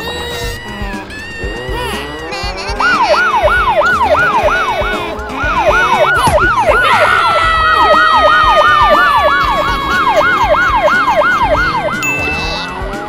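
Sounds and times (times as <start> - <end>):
police siren yelping: 2.6 - 13.0.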